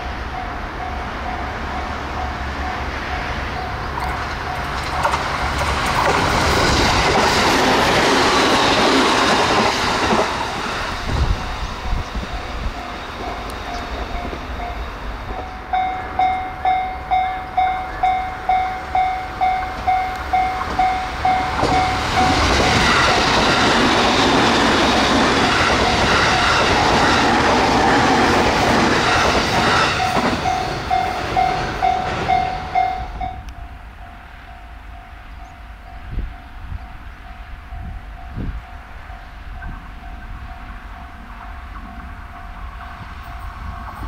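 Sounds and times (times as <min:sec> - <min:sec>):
level-crossing warning bell: 0:00.0 - 0:05.8, 0:08.0 - 0:44.0
train passing at speed: 0:00.0 - 0:44.0.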